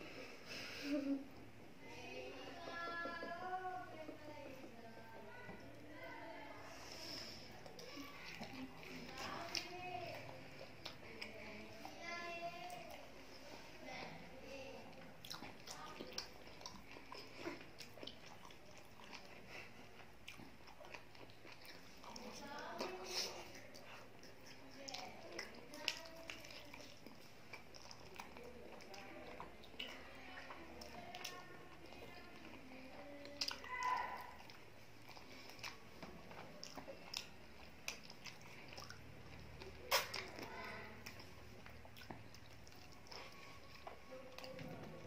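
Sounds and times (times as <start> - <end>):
chewing: 0.0 - 45.0
fingers squishing food: 14.8 - 45.0.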